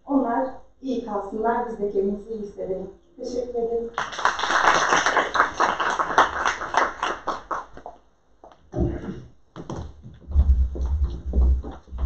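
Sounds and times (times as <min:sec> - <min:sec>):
audience applause: 0:04.0 - 0:07.8.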